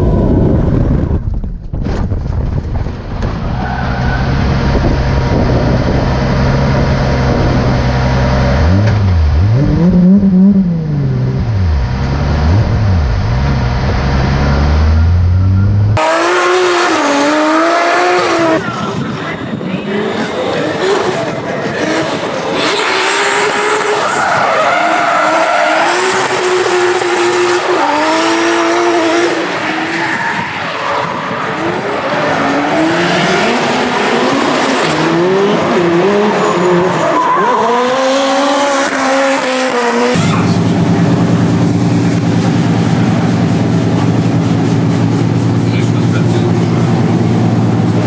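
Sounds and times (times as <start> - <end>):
car engines revving: 2.8 - 48.0
steady low drone: 40.2 - 48.0.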